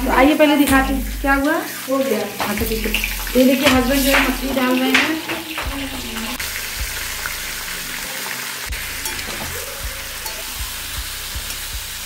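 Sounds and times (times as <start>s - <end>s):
fish sizzling in oil: 0.0s - 12.0s
spatula knocking pan: 2.3s - 6.4s, 8.7s - 11.8s.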